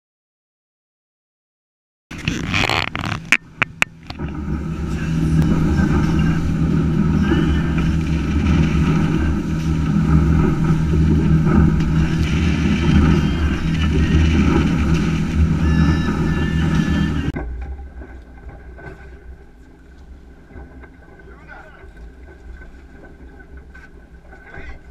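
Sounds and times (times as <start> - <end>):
boat engine running: 2.1 - 24.9
wind and water rushing: 2.3 - 19.6.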